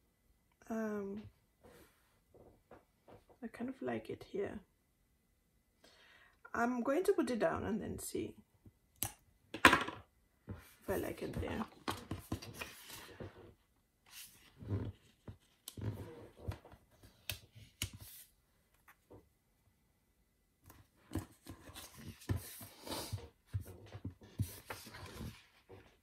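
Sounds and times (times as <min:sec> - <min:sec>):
paper rustling: 0:11.2 - 0:13.3.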